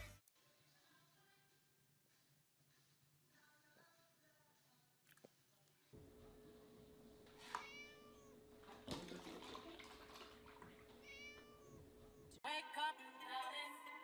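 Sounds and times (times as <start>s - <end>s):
kitten meowing: 7.4s - 8.3s, 11.0s - 11.8s.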